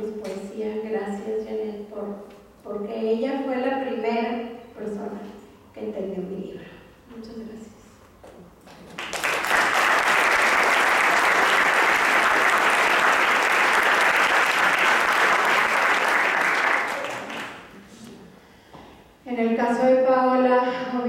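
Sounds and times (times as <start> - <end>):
audience applauding: 8.8 - 17.8.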